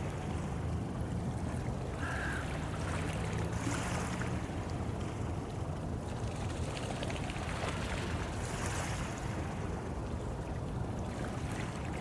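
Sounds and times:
waves lapping on pebbles: 0:06.0 - 0:09.8.

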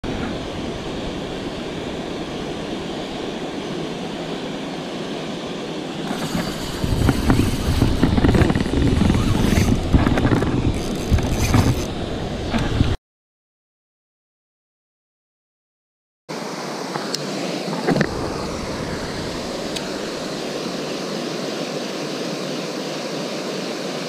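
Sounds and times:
wind and handling noise: 0:00.0 - 0:13.0, 0:16.6 - 0:20.8.

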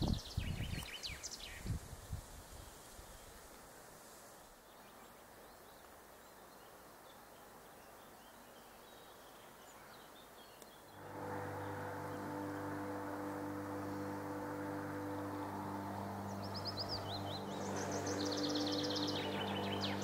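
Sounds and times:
steady low drone: 0:11.0 - 0:20.0.

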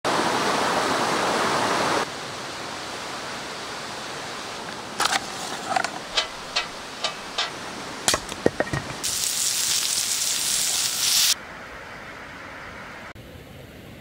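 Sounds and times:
stream rushing: 0:00.0 - 0:14.0
forest ambience: 0:00.9 - 0:14.0.

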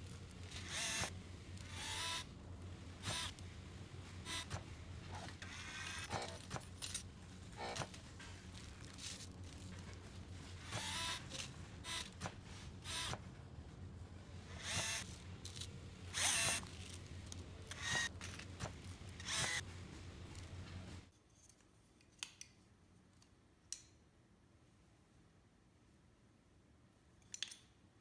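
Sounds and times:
cordless drill whirring: 0:00.4 - 0:02.3, 0:03.0 - 0:03.4, 0:04.2 - 0:04.6, 0:05.4 - 0:06.5, 0:10.6 - 0:13.2, 0:14.5 - 0:17.0, 0:17.7 - 0:19.6.

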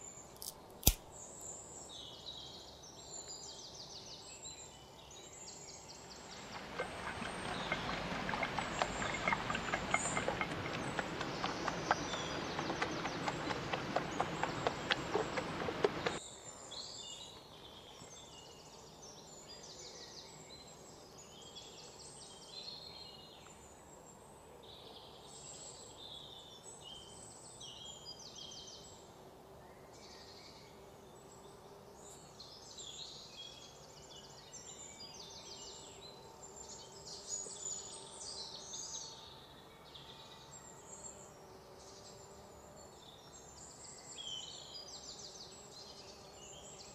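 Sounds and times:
birds chirping: 0:06.0 - 0:16.2
insects chirping: 0:06.1 - 0:16.2.

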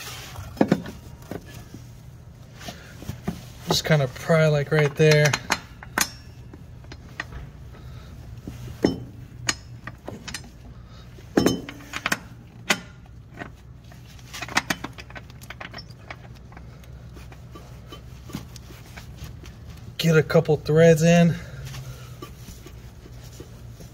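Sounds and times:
pry bar clinking on metal: 0:04.8 - 0:06.5.

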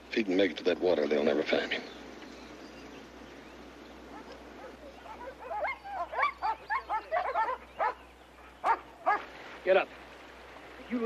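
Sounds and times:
dogs baying and barking: 0:04.0 - 0:09.4.

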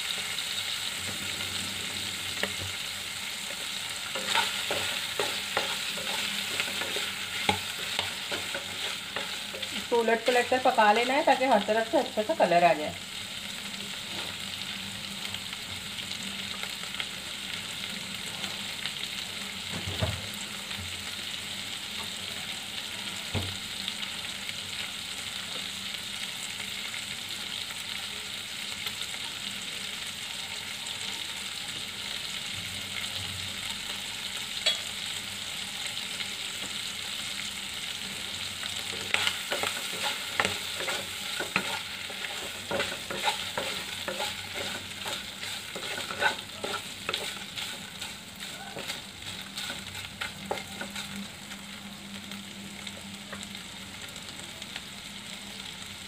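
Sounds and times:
liver sizzling in oil: 0:00.0 - 0:56.0
utensil scraping a pan: 0:03.5 - 0:09.9, 0:38.9 - 0:51.2.

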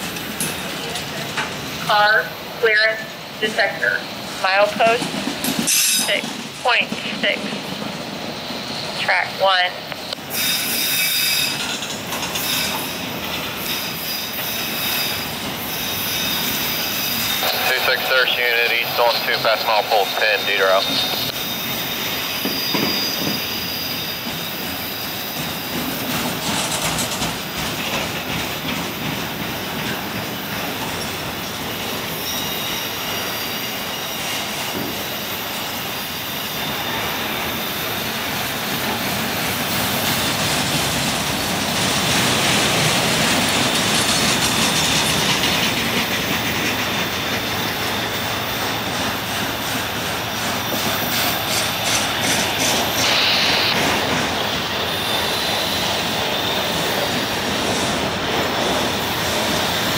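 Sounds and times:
steel wheels rumbling on rail: 0:00.0 - 0:59.9
high wheel squeal: 0:10.0 - 0:17.8, 0:20.7 - 0:25.9, 0:30.4 - 0:38.3, 0:43.6 - 0:57.4.

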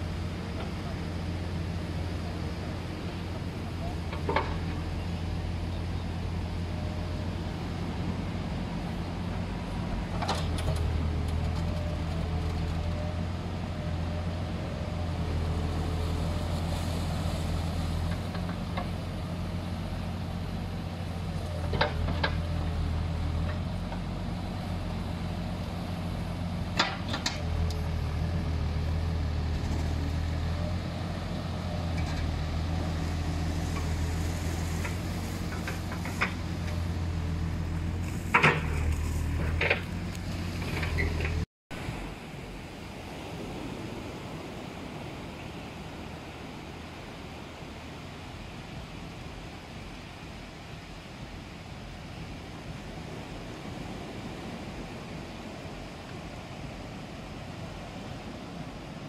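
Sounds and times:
diesel engine running: 0:00.0 - 0:41.5.

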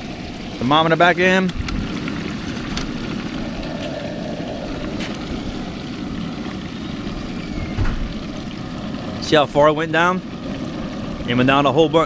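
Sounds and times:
fries bubbling and sizzling in oil: 0:00.0 - 0:12.0
gas burner running: 0:00.0 - 0:12.0.

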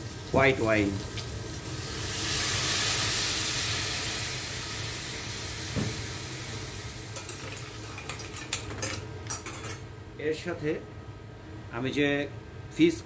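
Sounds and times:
wine sizzling in hot pan: 0:00.0 - 0:09.7.

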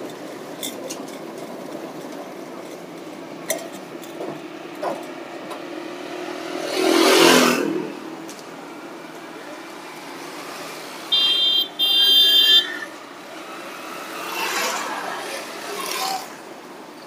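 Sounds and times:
road traffic noise: 0:00.0 - 0:17.0
high-pitched vehicle horn honking: 0:11.1 - 0:12.9.

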